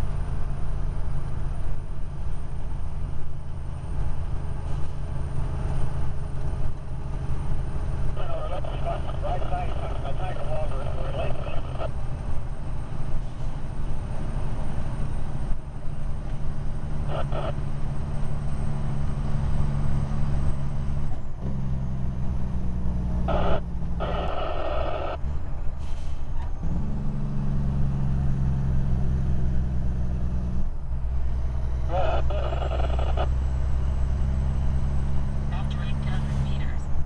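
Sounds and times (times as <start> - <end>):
diesel truck engine drone: 0.0 - 37.0.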